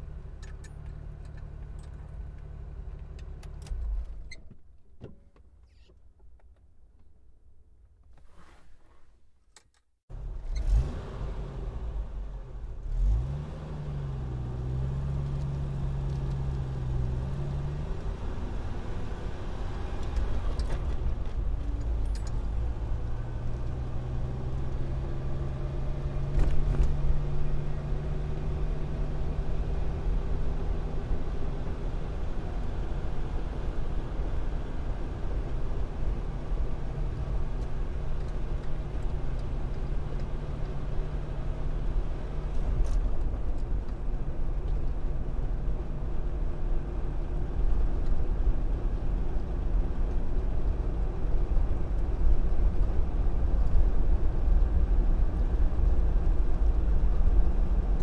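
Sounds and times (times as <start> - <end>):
road rumble: 0.0 - 9.2, 10.1 - 58.0
car engine hum: 10.1 - 58.0.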